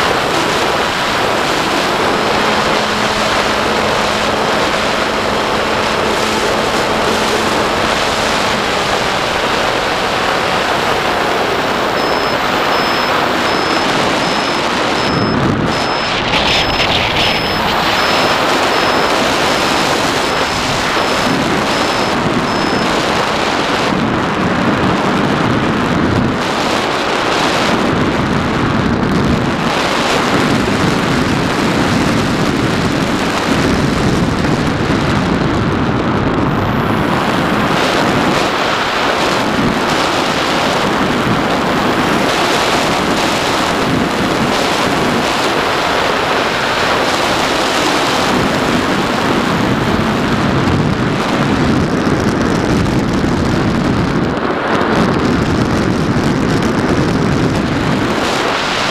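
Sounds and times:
faint high whine: 0.0s - 23.9s, 36.1s - 50.2s
wind buffeting microphone: 0.0s - 58.9s.

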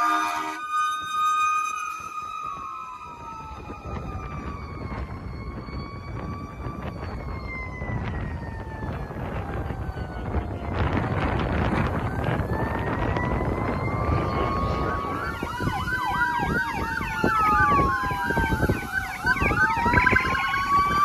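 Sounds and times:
fire engine siren: 0.0s - 21.0s
wind rumble on microphone: 1.9s - 21.0s.

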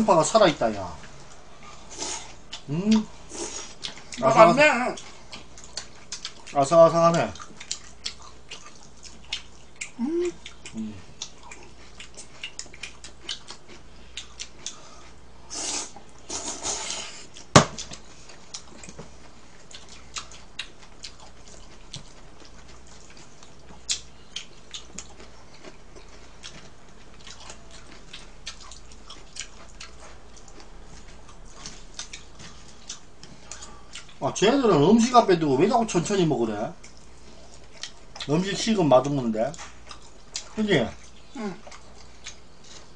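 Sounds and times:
chewing food: 1.0s - 34.3s, 35.6s - 42.9s
sharp knock: 17.6s - 17.8s.

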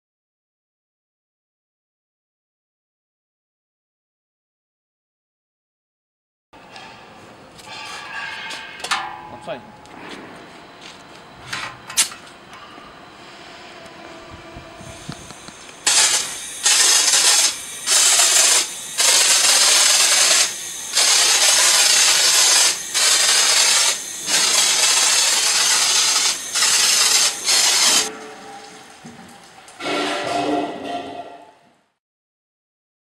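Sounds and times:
foam sprayer hissing: 14.8s - 28.1s.

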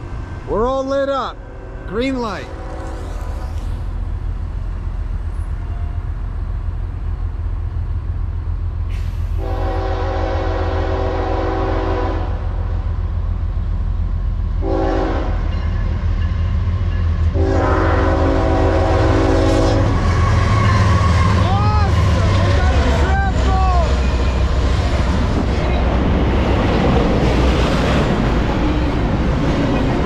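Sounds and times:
diesel locomotive rumble: 0.0s - 30.0s
train air horn blasts: 1.4s - 3.6s, 8.9s - 12.5s, 14.6s - 15.5s, 17.3s - 21.4s.

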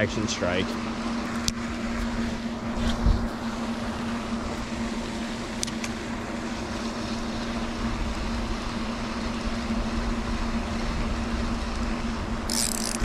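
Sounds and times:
low hum over a rumble: 0.0s - 13.0s
spinning reel clicking: 12.5s - 13.0s.

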